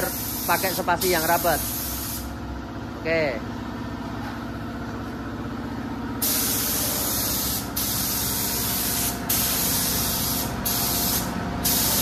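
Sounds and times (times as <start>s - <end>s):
spray gun hissing: 0.0s - 2.3s, 6.2s - 12.0s
low machine hum: 0.1s - 12.0s.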